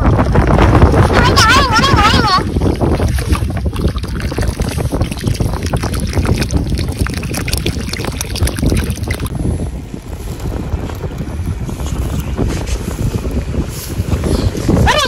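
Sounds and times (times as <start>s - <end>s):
wind on microphone: 0.0s - 15.0s
water pouring and bubbling: 1.9s - 9.4s.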